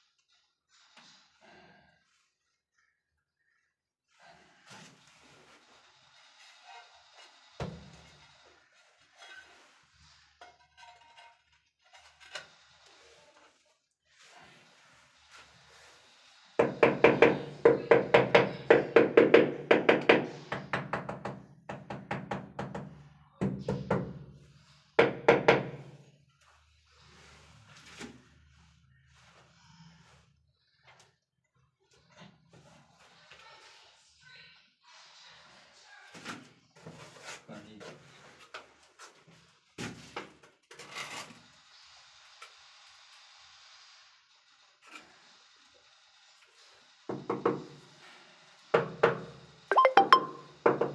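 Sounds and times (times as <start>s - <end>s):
knocks and scrapes of tiles and tools: 4.5s - 31.1s, 36.1s - 41.5s, 47.1s - 47.9s.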